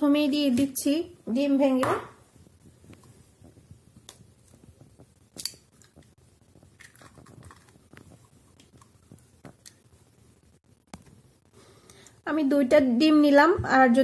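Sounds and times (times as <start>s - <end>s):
eggs cracking into glass bowl: 6.8s - 9.8s.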